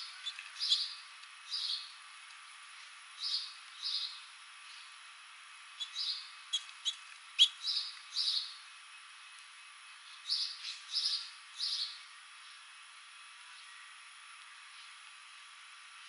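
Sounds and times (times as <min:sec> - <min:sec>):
finches chirping: 0:00.0 - 0:01.9, 0:05.8 - 0:08.6.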